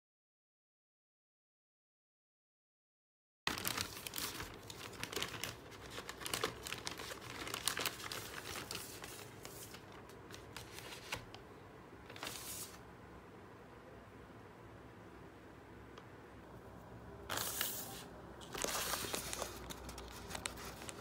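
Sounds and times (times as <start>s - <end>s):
plastic bag crinkling and rustling: 3.5s - 11.4s, 17.3s - 21.0s.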